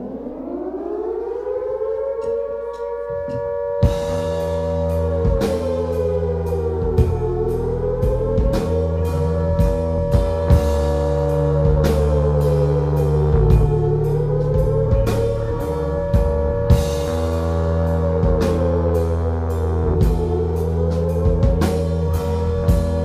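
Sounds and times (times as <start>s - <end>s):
bass notes: 0.0s - 23.0s
drum kit hits: 3.8s - 6.0s, 6.8s - 19.0s, 19.9s - 23.0s.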